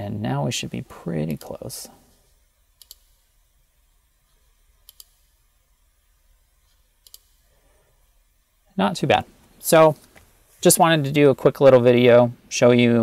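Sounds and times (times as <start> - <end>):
computer mouse clicking: 2.8 - 3.2, 4.8 - 5.3, 6.7 - 7.4.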